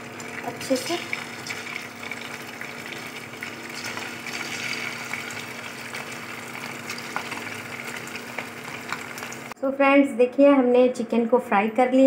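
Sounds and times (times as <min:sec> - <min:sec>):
oil sizzling with crackles: 0:00.0 - 0:09.6.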